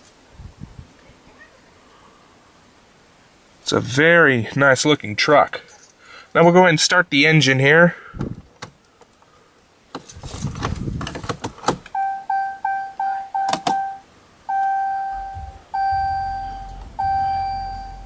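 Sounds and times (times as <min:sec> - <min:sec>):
keys jangling and clicking: 0:10.0 - 0:10.8
vehicle warning chime beeps: 0:11.9 - 0:18.0
low hum: 0:12.4 - 0:18.0.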